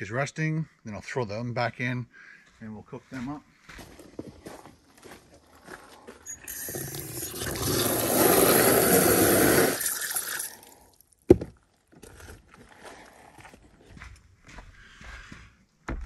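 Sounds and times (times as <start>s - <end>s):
water running into plastic basin: 6.5s - 10.8s.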